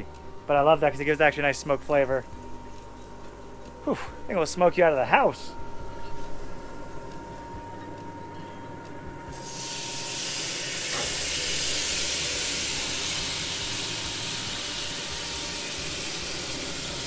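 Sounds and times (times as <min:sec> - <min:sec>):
marinade sizzling on hot grill: 0:09.3 - 0:17.0.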